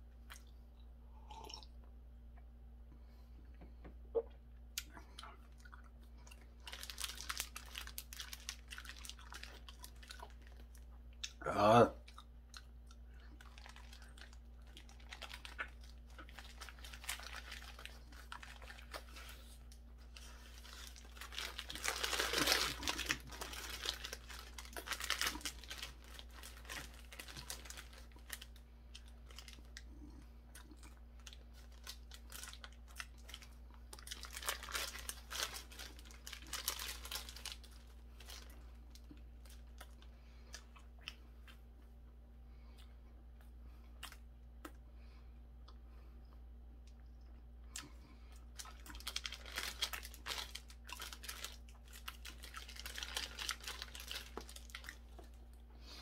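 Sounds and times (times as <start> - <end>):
paper wrapper crumpling: 6.4 - 10.8, 13.4 - 29.9, 31.2 - 40.0, 48.6 - 55.5.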